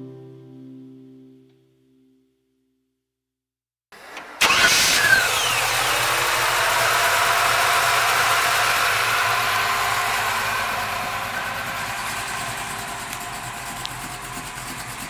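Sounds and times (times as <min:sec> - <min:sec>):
truck engine idling: 0:04.4 - 0:15.0.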